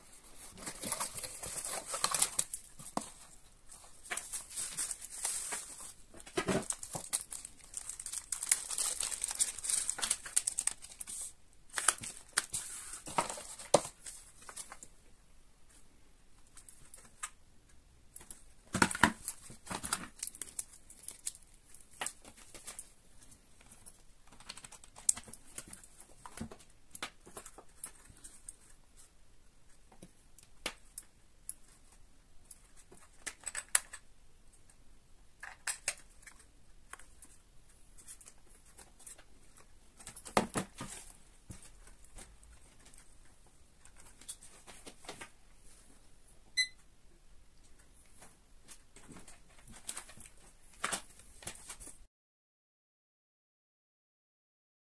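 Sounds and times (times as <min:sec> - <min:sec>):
bubble wrap and plastic crinkling: 0:00.0 - 0:14.9, 0:18.2 - 0:29.2, 0:38.0 - 0:45.9.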